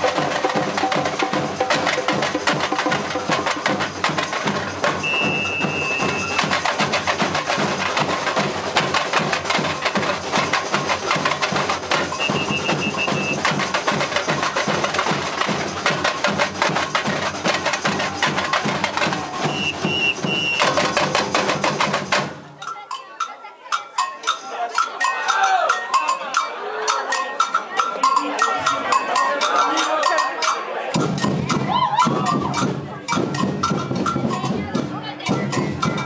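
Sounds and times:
samba drums and percussion: 0.0 - 36.0
high whistle blasts: 5.0 - 6.4, 12.2 - 13.4, 19.5 - 20.8.

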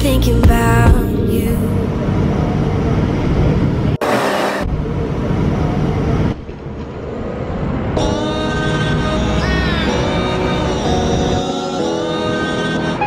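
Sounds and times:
music: 0.0 - 2.0, 8.0 - 13.0
bus engine and road noise: 0.0 - 13.0.

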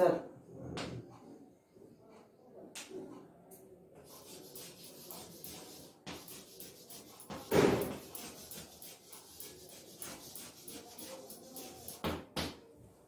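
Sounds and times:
chalk tapping on blackboard: 4.0 - 12.6.

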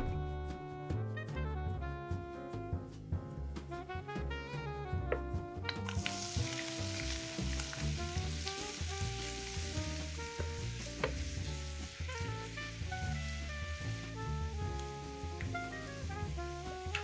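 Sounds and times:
onion sizzling in oil: 5.8 - 17.0.

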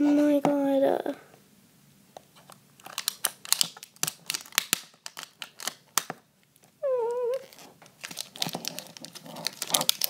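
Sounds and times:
plastic wrapper crackling: 2.8 - 10.0.

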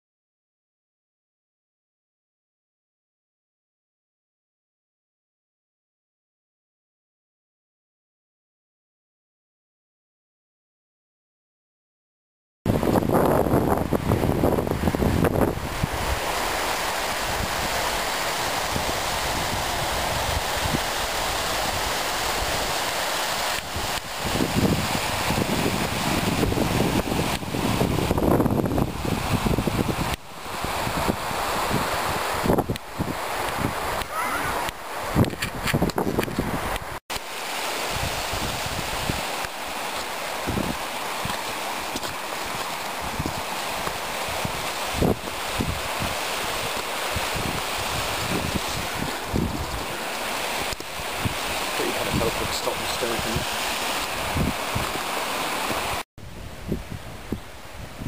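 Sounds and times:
wind buffeting microphone: 12.7 - 37.0, 37.8 - 58.0
stream rushing over stones: 12.7 - 56.1.

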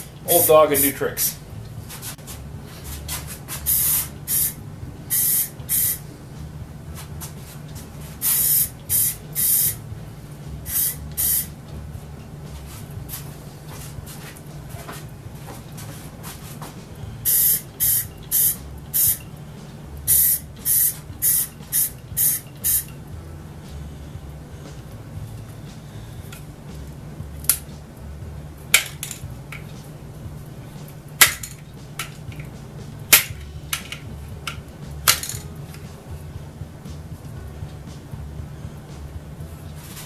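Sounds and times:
low steady hum: 0.0 - 40.0
spray can hissing bursts: 3.1 - 6.0, 8.2 - 9.8, 10.6 - 11.5, 17.2 - 19.2, 20.1 - 22.9.

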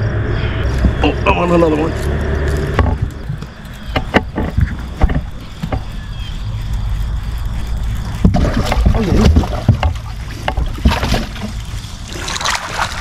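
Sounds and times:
water and wind rumble: 0.0 - 13.0
sharp clicks and knocks: 2.0 - 6.0.

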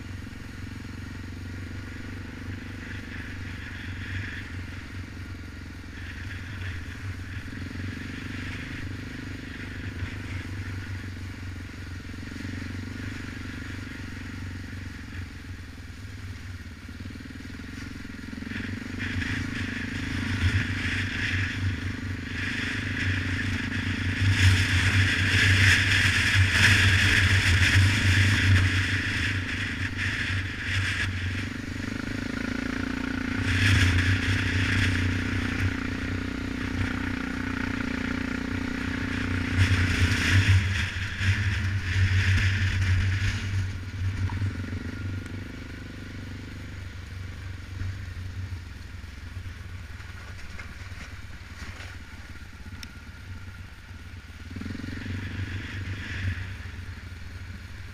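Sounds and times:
atv engine running: 0.0 - 57.9
tyre and rattling noise: 49.9 - 52.4.

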